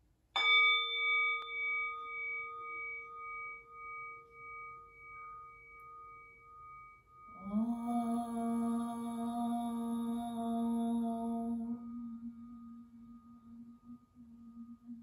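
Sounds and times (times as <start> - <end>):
singing bowl ringing: 0.0 - 15.0
mallet striking bowl: 0.4 - 7.5
woman chanting: 7.3 - 15.0.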